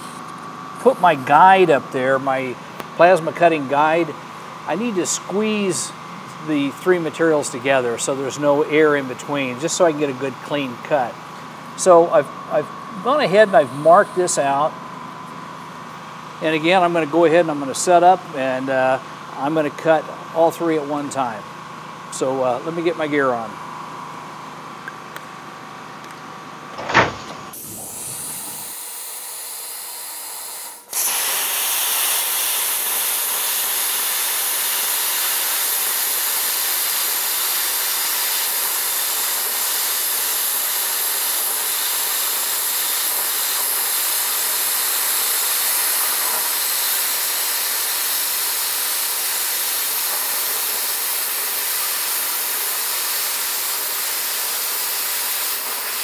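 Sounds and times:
plasma cutter arc hissing: 0.8s - 1.8s, 13.0s - 14.7s, 26.8s - 29.8s, 30.9s - 56.0s
sharp knock: 26.8s - 27.6s.

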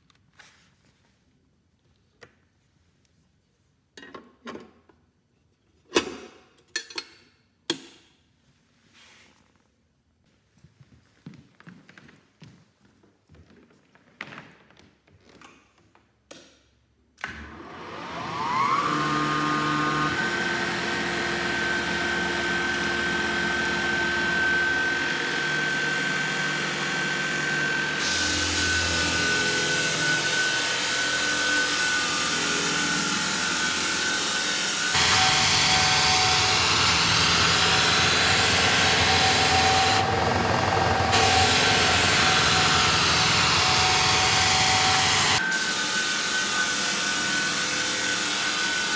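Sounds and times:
floor sander motor whine: 17.3s - 48.9s.

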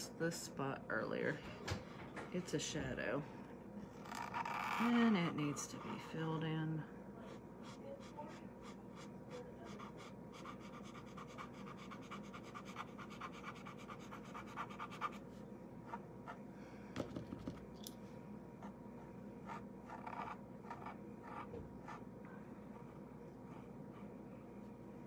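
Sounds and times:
pen scratching: 4.0s - 6.2s, 7.3s - 15.2s, 19.4s - 22.0s.

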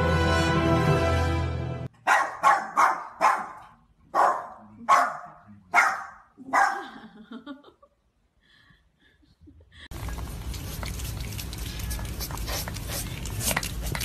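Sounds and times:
small dog barking: 2.0s - 6.9s.

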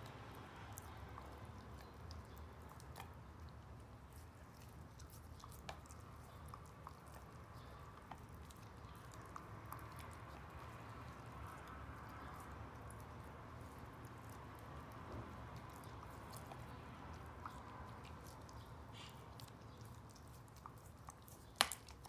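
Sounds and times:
dog licking and gnawing meat: 0.0s - 22.0s.

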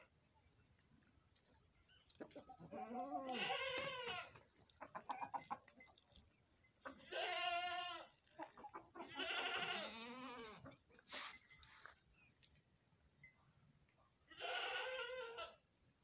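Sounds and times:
goat bleating: 2.6s - 4.4s, 6.9s - 10.8s, 14.3s - 15.6s.

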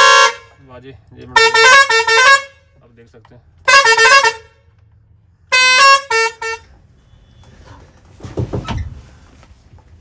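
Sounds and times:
truck musical horn tune: 0.0s - 0.6s, 1.4s - 2.8s, 3.6s - 4.7s, 5.5s - 7.5s
soft rumbling bump: 7.5s - 10.0s.

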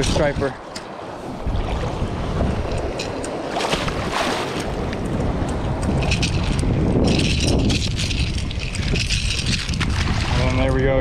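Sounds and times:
surf washing: 0.0s - 7.2s, 8.4s - 11.0s
wind on microphone: 0.0s - 11.0s
fish thrashing in water: 2.8s - 4.9s.

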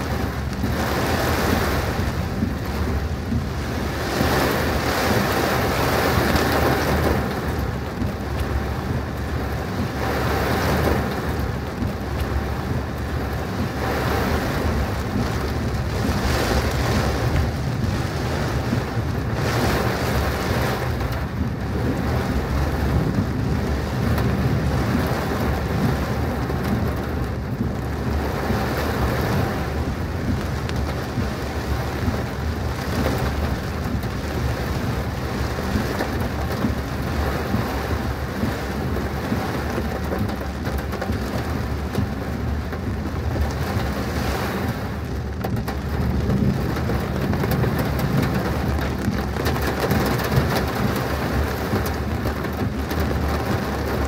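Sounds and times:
low rumble: 0.0s - 10.0s, 11.0s - 44.1s
heavy rain drumming on car: 0.0s - 54.0s.

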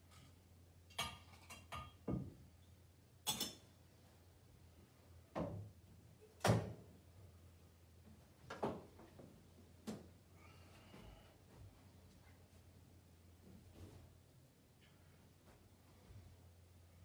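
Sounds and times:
metal vessels knocking and clinking: 0.9s - 2.3s, 3.2s - 3.6s.

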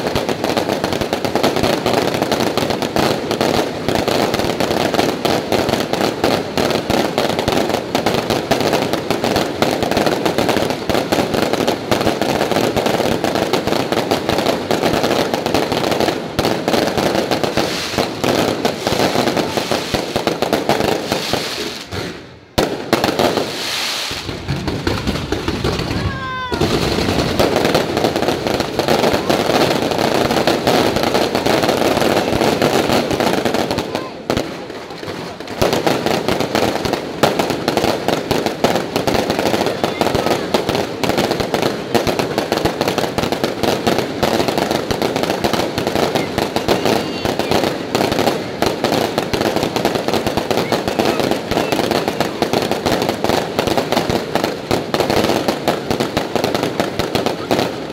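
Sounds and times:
fireworks bangs and crackling: 0.0s - 57.9s.

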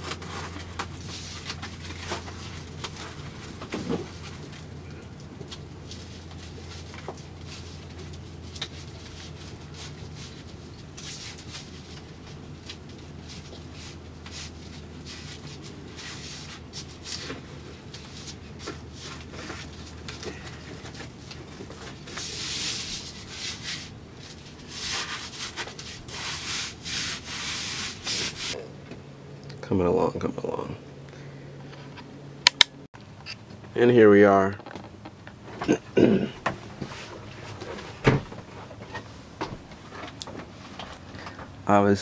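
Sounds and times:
hands scraping insulation sheets: 0.0s - 4.6s, 5.8s - 28.6s
steady low hum: 0.0s - 42.0s.

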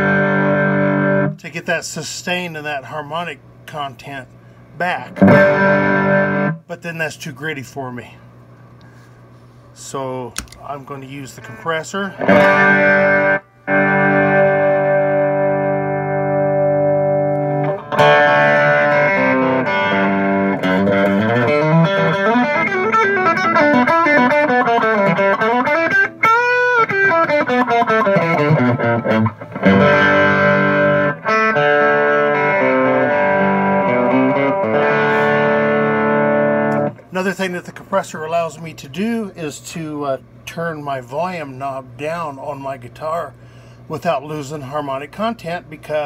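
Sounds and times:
overdriven electric guitar: 0.0s - 1.4s, 5.1s - 6.6s, 12.2s - 37.1s.

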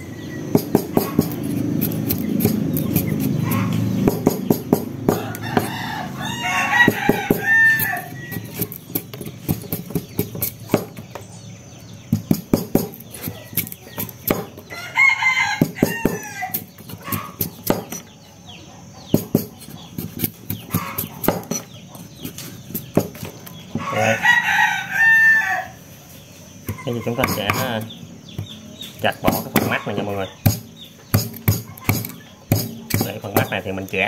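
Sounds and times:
knife cutting sugarcane: 0.6s - 6.0s, 6.7s - 11.3s, 12.1s - 14.8s, 15.5s - 18.1s, 19.1s - 24.0s, 29.1s - 34.0s
rooster crowing: 5.0s - 8.7s, 14.7s - 17.4s, 23.8s - 25.9s.

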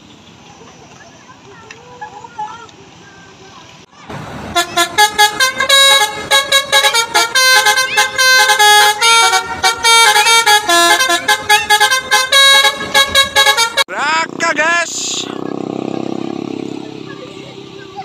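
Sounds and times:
multi-tone bus horn tune: 4.5s - 13.9s.

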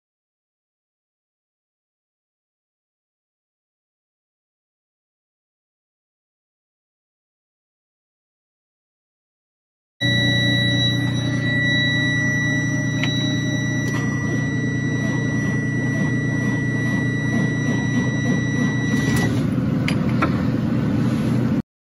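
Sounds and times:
high warning buzzer: 10.0s - 19.5s.

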